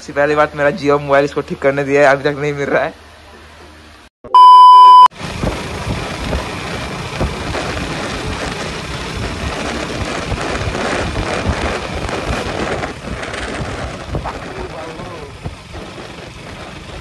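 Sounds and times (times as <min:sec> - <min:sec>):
tyres on wet road: 0:00.0 - 0:04.1, 0:05.1 - 0:17.0
electronic test-tone beep: 0:04.3 - 0:05.1
motorcycle engine: 0:05.0 - 0:17.0
wind buffeting microphone: 0:05.2 - 0:17.0.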